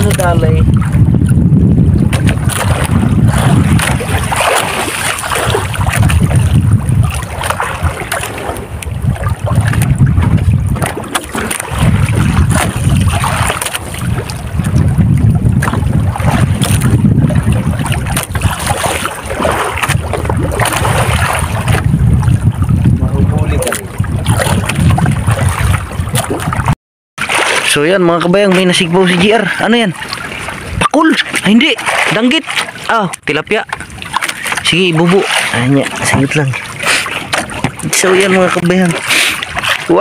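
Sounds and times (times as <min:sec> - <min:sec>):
water washing against hull: 0:00.0 - 0:40.0
wind buffeting microphone: 0:00.0 - 0:40.0.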